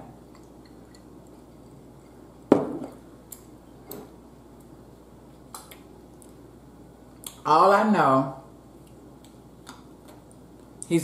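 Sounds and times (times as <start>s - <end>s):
tableware knocking on table: 2.5s - 3.0s.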